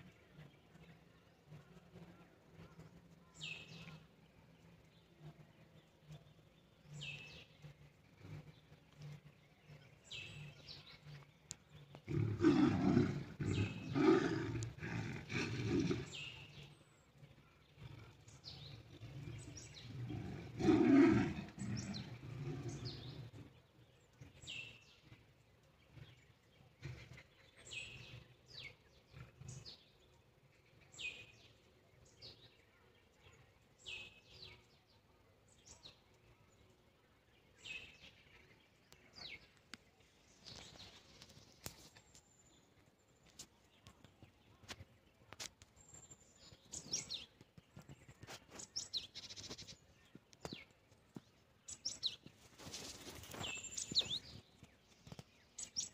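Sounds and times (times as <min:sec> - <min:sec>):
bird chirping: 0:00.0 - 0:55.9
big cats growling and roaring: 0:12.0 - 0:16.6, 0:17.7 - 0:23.7.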